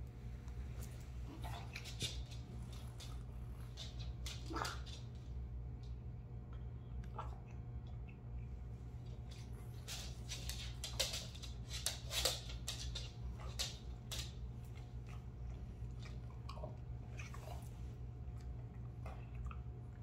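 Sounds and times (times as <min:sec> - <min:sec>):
dog sniffing and snuffling: 0:00.8 - 0:05.0.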